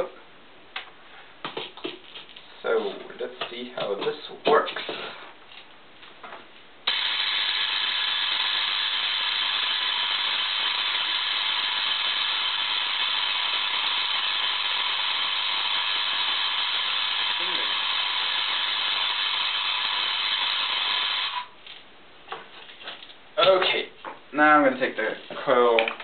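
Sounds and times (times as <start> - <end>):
tesla coil spark gap buzzing: 6.8 - 21.6.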